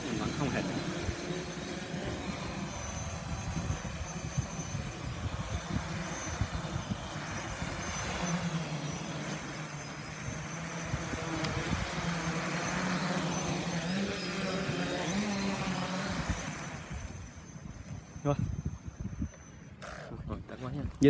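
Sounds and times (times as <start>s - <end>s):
wind buffeting microphone: 0.0s - 9.5s, 10.2s - 12.7s, 13.5s - 21.0s
drone motors humming: 0.0s - 21.0s.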